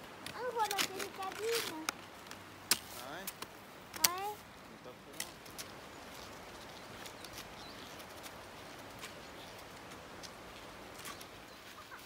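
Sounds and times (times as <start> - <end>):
faint steady hiss: 0.0 - 12.0
footsteps crunching on snow: 5.1 - 12.0.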